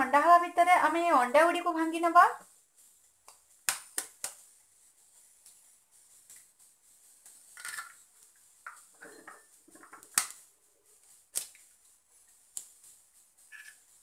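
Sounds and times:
eggshell crackling: 7.2 - 9.0.

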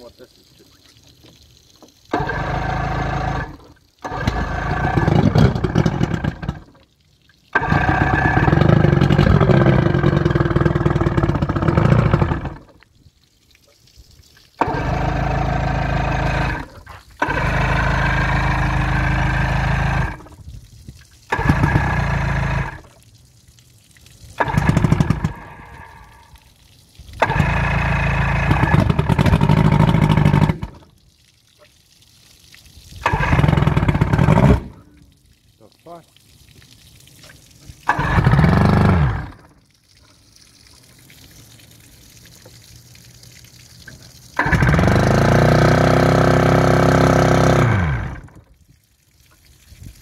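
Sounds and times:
outboard motor cranking: 2.1 - 6.8, 7.5 - 12.8, 14.6 - 20.4, 21.3 - 23.0, 24.4 - 26.2, 27.2 - 30.9, 33.0 - 34.8, 37.8 - 39.6, 43.9 - 48.4.

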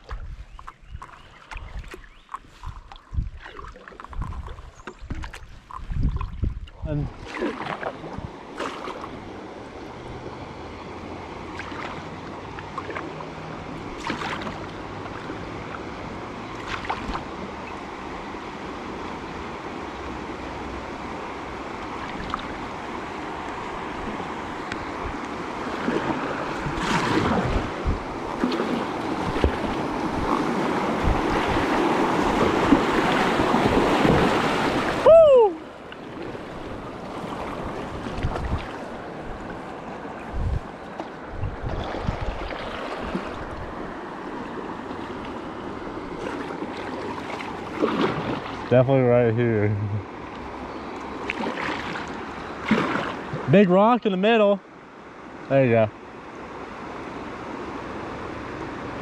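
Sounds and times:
wind on microphone: 0.0 - 10.4, 23.4 - 46.6
paddle splashes: 0.0 - 48.8, 50.0 - 53.6
river water rushing: 7.1 - 59.0.

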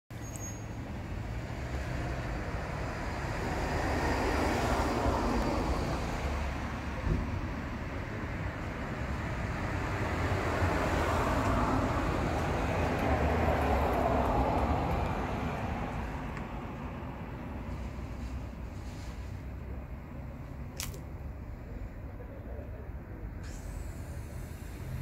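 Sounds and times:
road traffic rumble: 0.1 - 25.0.

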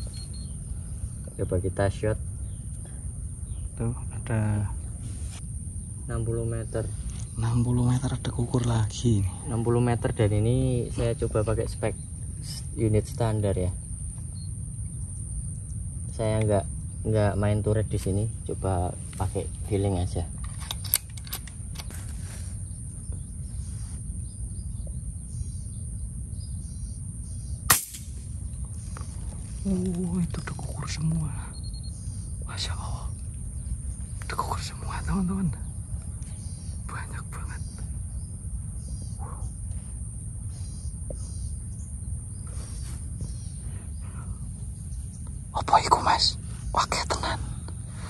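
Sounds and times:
faint bird chirps: 0.0 - 21.0, 21.7 - 48.0
low outdoor rumble: 0.0 - 48.0
air rifle shot: 27.7 - 28.3.

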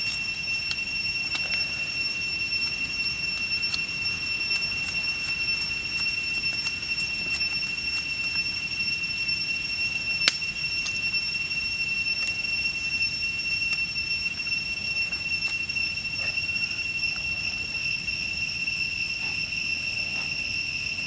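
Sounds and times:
knife shaving wooden skewer: 0.0 - 12.5
high-pitched insect drone: 0.0 - 21.0.

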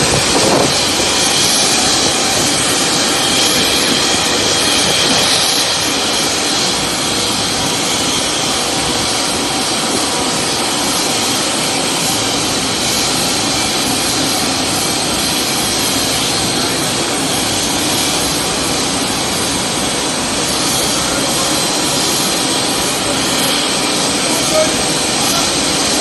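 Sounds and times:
jet engine rushing with whine: 0.0 - 26.0.

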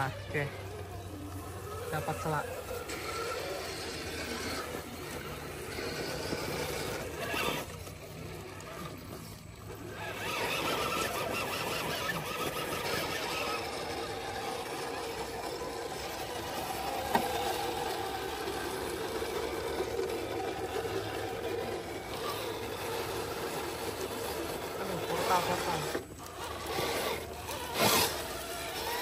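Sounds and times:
electric motor and gears whining: 0.0 - 29.0.

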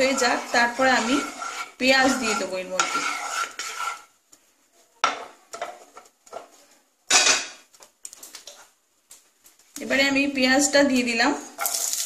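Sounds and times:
wooden spatula scraping pan: 0.0 - 4.2.

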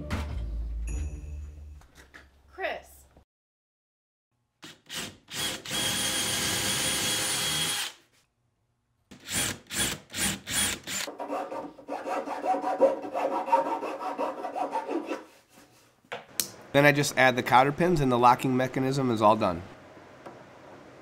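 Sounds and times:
cordless drill running: 4.9 - 8.0, 9.2 - 11.1.

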